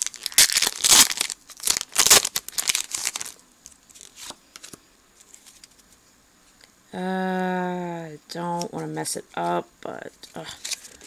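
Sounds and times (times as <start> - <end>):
foil wrapper crinkling and tearing: 0.0 - 5.8.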